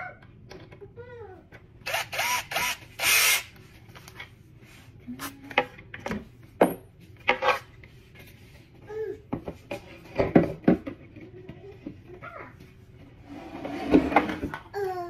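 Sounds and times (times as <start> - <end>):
cordless drill driving a screw: 1.8 - 3.5.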